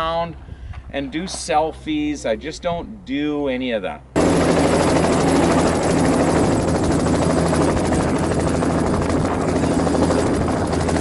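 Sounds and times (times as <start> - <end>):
helicopter turbine and rotor: 4.2 - 11.0.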